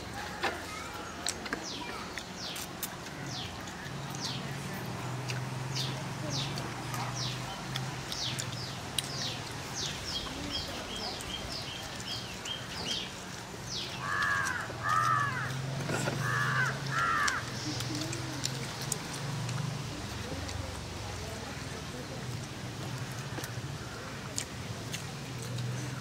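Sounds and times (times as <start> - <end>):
crows cawing: 14.0 - 17.5.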